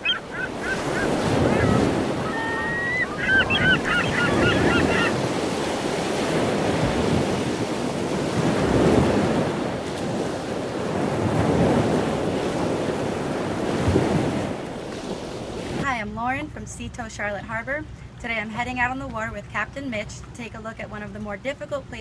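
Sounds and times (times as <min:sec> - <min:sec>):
bird short high calls: 0:00.0 - 0:05.2
wind gusting on microphone: 0:00.0 - 0:15.8
waves washing: 0:00.0 - 0:15.9.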